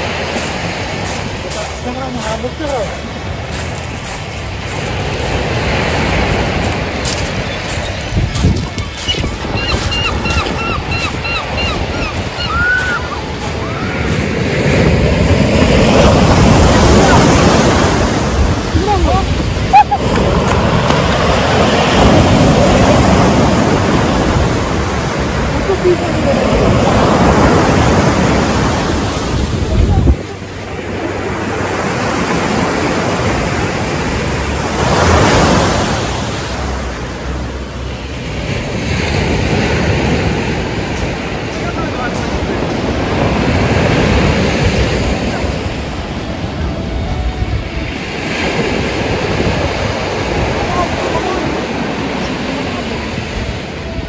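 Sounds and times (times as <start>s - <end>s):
sea waves washing onto beach: 0.0s - 54.0s
wind buffeting microphone: 0.0s - 54.0s
short high calls: 8.8s - 14.0s.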